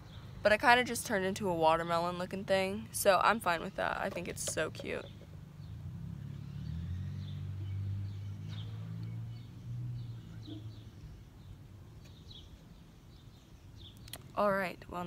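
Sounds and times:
small birds chirping: 0:03.5 - 0:15.0
car passing with low rumble: 0:04.2 - 0:13.9.

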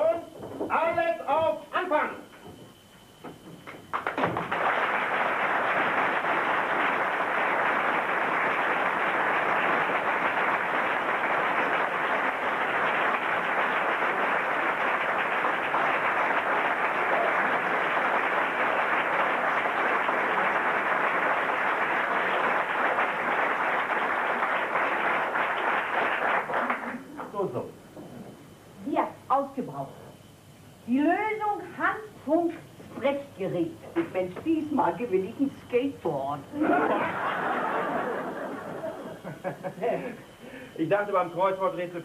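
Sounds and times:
audience applauding: 0:03.9 - 0:27.0.

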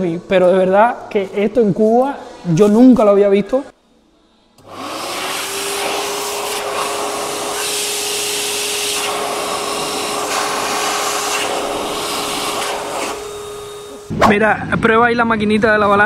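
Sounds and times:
hand dryer motor whine: 0:04.6 - 0:14.1.

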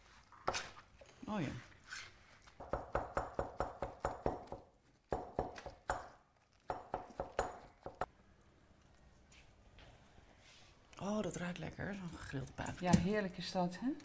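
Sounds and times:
knife chopping on cutting board: 0:02.6 - 0:08.1.

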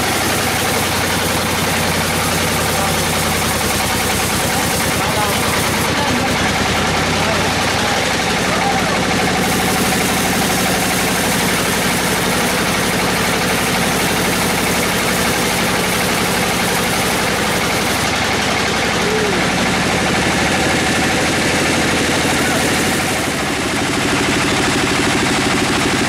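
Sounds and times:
band saw cutting hardwood: 0:00.0 - 0:26.0.

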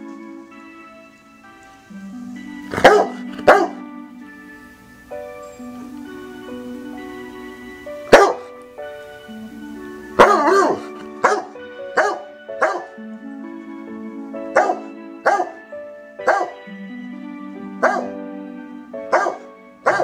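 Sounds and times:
background music with held notes: 0:00.0 - 0:20.0
dog barking: 0:02.7 - 0:03.8, 0:08.1 - 0:08.5, 0:10.2 - 0:12.9, 0:14.6 - 0:15.6, 0:16.2 - 0:16.6, 0:17.8 - 0:18.1, 0:19.1 - 0:20.0.

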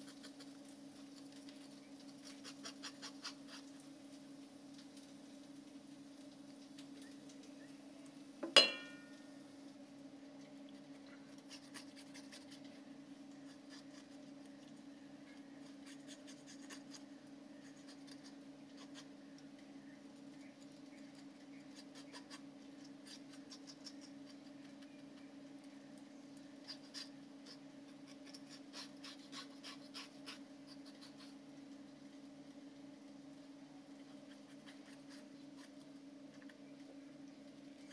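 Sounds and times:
low steady hum: 0:00.0 - 0:37.9
knife scraping fish skin: 0:26.7 - 0:31.3.

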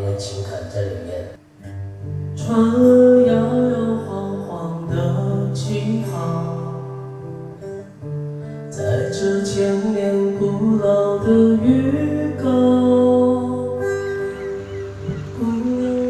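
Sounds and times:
acoustic guitar: 0:00.0 - 0:16.0
man singing: 0:02.4 - 0:07.3, 0:08.7 - 0:16.0.

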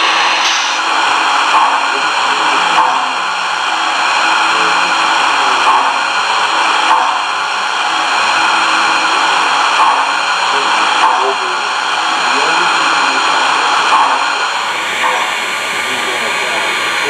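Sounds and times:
steam locomotive hiss from speaker: 0:00.0 - 0:06.8, 0:08.4 - 0:17.0.

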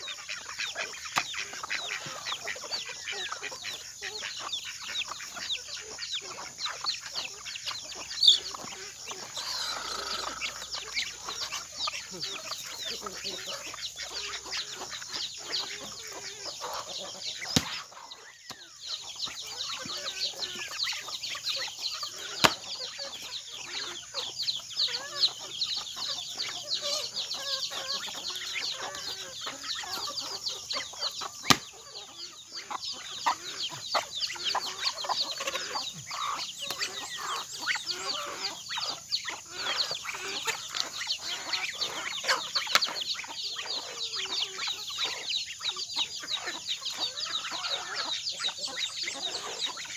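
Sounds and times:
chickens clucking and chirping: 0:00.0 - 0:49.9
machete chopping into fruit: 0:17.4 - 0:17.8, 0:22.4 - 0:22.6, 0:31.4 - 0:31.8.

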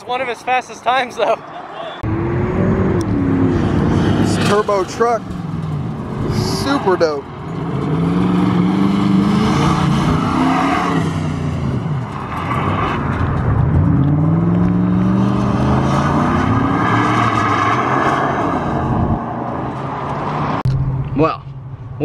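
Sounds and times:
pickup truck engine revving: 0:02.0 - 0:19.4.

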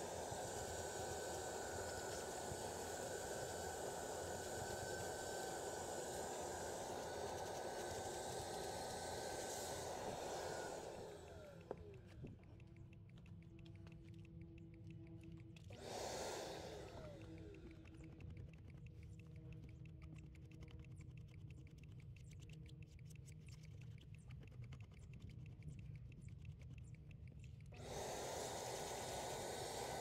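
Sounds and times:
vacuum motor rushing: 0:00.0 - 0:12.3, 0:15.7 - 0:18.0, 0:27.8 - 0:30.0
faint rapid clicking: 0:04.4 - 0:28.1.

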